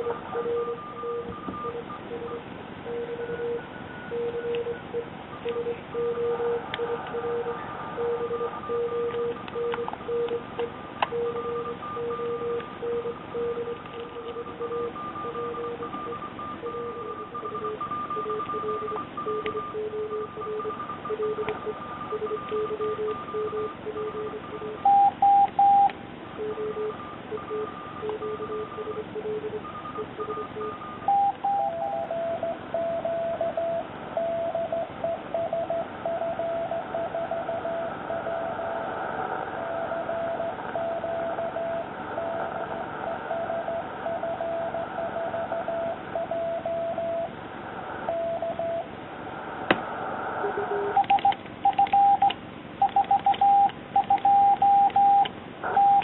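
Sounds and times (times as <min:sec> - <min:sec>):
morse code beeps: 0:00.0 - 0:38.7, 0:39.6 - 0:47.3, 0:48.1 - 0:48.9, 0:50.5 - 0:56.0
receiver hiss: 0:33.8 - 0:46.1, 0:47.0 - 0:55.8.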